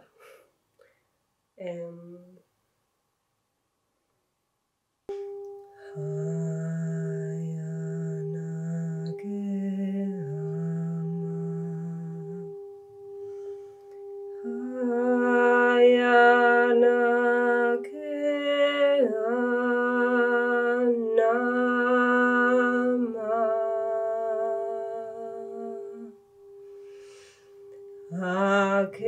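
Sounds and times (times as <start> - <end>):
woman chanting: 1.6 - 2.4, 5.8 - 12.6, 14.4 - 26.2, 28.1 - 29.0.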